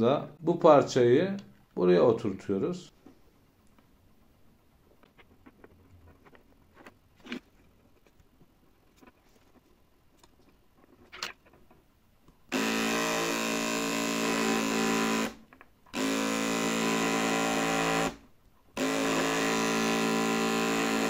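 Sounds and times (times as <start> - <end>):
beard trimmer buzzing: 12.5 - 18.2, 18.8 - 21.0.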